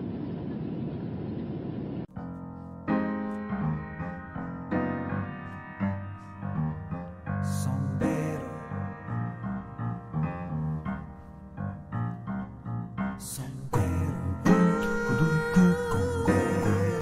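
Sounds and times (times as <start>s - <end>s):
airliner cabin rumble: 0.0s - 2.1s
piano music: 2.1s - 17.0s.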